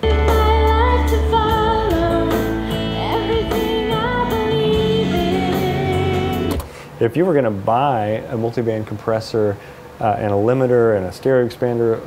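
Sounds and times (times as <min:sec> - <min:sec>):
person singing long notes: 0:00.0 - 0:06.6
instrumental backing with bass line: 0:00.0 - 0:06.7.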